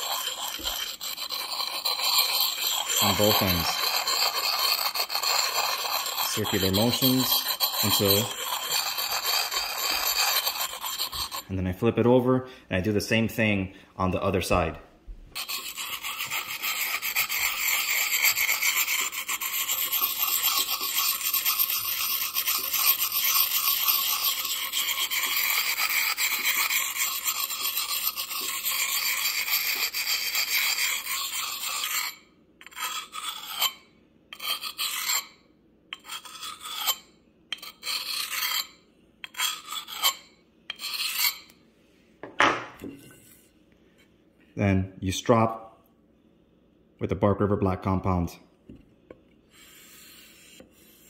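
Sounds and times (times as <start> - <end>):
hatchet rasping on sharpening stone: 0.0 - 11.5, 15.4 - 41.6.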